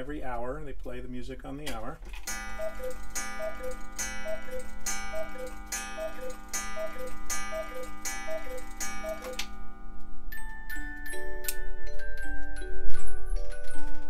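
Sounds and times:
clock mechanism clicks: 1.7s - 9.6s
cuckoo clock calls: 2.2s - 10.5s.

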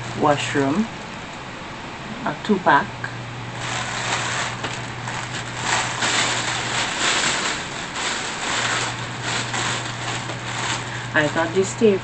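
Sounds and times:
low steady hum: 0.0s - 12.0s
plastic packaging crinkling: 3.5s - 12.0s.

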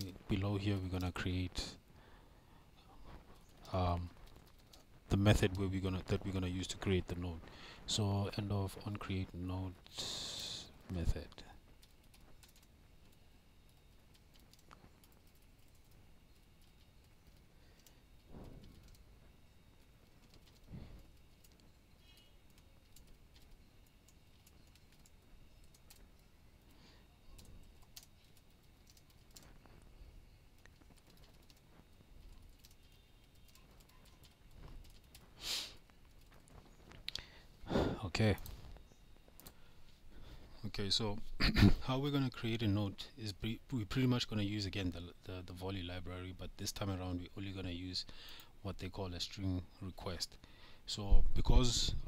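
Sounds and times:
computer keyboard typing: 11.8s - 18.0s, 18.6s - 19.1s, 20.0s - 26.3s, 27.3s - 29.8s, 30.6s - 35.3s
breath or sniff: 35.4s - 35.8s.

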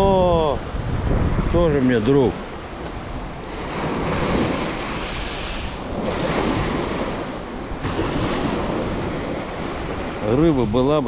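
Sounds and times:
waves washing up pebble beach: 2.6s - 10.6s.

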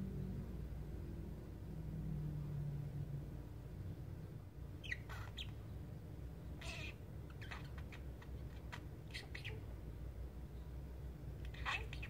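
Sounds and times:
budgerigar chirping softly: 4.8s - 5.8s, 6.4s - 9.8s, 11.4s - 12.0s.

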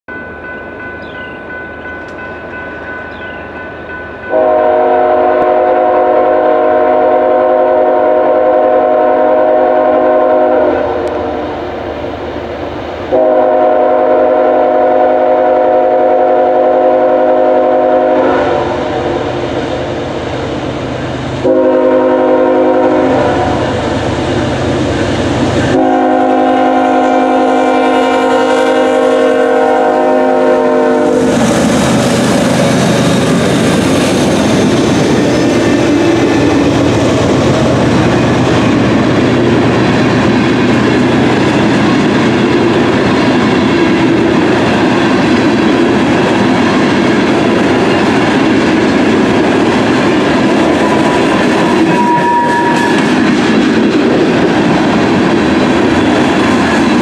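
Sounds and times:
locomotive air horn blasts: 4.3s - 11.6s, 13.1s - 19.4s, 21.4s - 23.8s, 25.7s - 31.4s, 50.7s - 53.1s.

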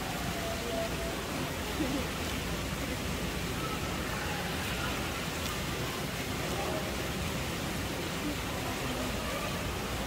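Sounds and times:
faint distant voices: 0.0s - 10.0s
steady background hiss: 0.0s - 10.0s.

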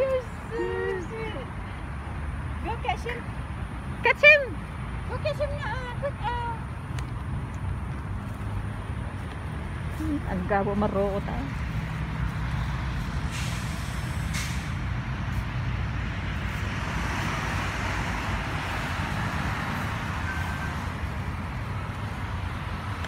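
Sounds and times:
road traffic rumble: 0.0s - 23.0s
vehicle passing by: 0.0s - 23.0s.

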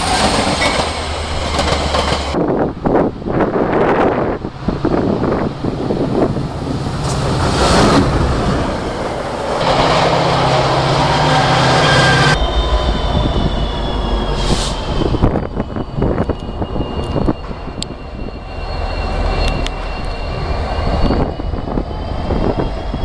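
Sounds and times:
locomotive engine drone: 0.0s - 23.0s
rail and wind noise: 0.0s - 23.0s
wheels rumbling on rail: 0.0s - 23.0s
high wheel squeal: 8.6s - 23.0s.

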